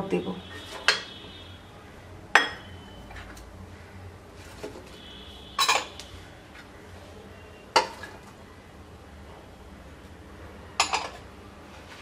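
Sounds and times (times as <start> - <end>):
dishware clattering against pot: 0.8 - 1.1, 2.4 - 2.7, 5.6 - 6.0, 7.8 - 8.2, 10.8 - 11.3.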